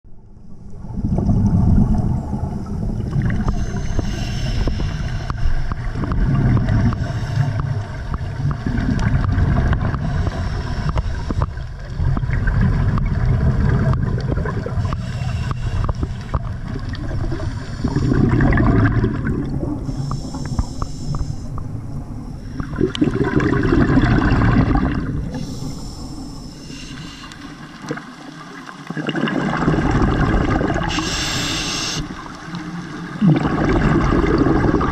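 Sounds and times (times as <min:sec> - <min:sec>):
exhaled bubbles gurgling underwater: 0:00.1 - 0:34.9
hissing regulator breaths: 0:03.4 - 0:05.8, 0:10.0 - 0:11.6, 0:14.8 - 0:16.5, 0:19.8 - 0:21.7, 0:25.3 - 0:27.8, 0:30.8 - 0:32.4.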